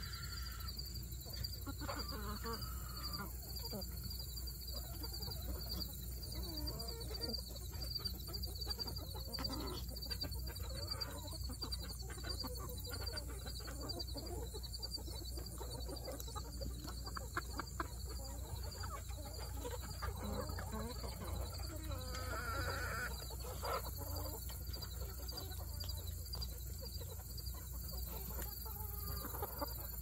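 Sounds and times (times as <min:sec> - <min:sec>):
chickens clucking: 0:00.0 - 0:30.0
small ticks: 0:28.1 - 0:29.8.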